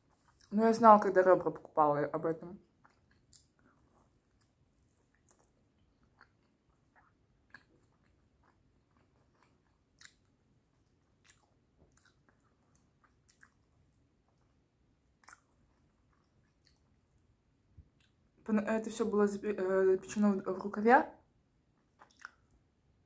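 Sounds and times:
chewing and mouth smacks: 0:00.0 - 0:00.5, 0:02.6 - 0:18.2, 0:21.8 - 0:22.6.

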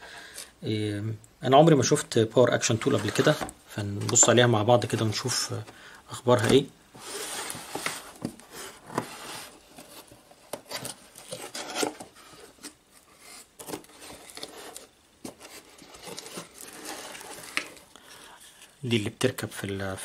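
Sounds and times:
plastic wrapping rustling: 0:06.3 - 0:18.9
cardboard scraping and knocking: 0:06.4 - 0:17.7.

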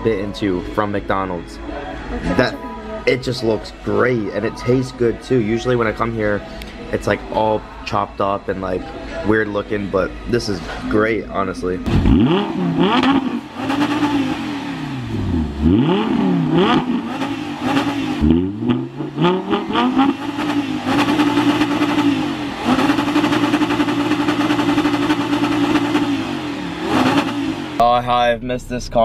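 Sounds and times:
car engine revving: 0:09.6 - 0:29.0.

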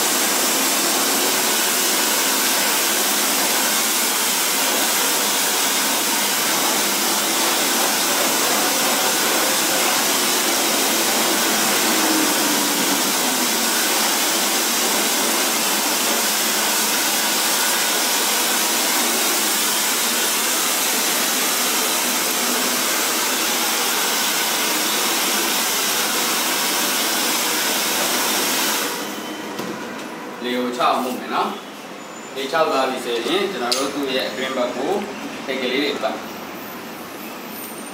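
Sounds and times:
hair dryer running: 0:00.0 - 0:29.2.

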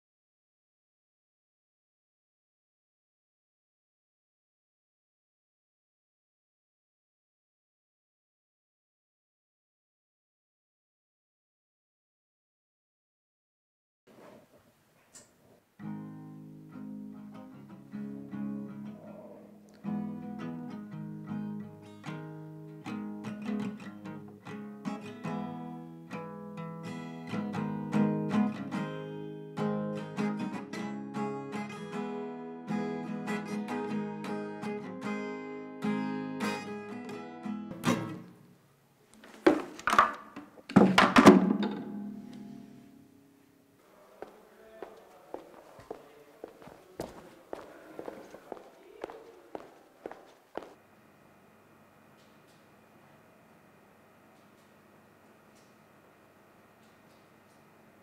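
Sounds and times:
acoustic guitar chords: 0:15.8 - 0:38.6
guitar being smashed: 0:37.7 - 0:38.3, 0:39.5 - 0:42.4.

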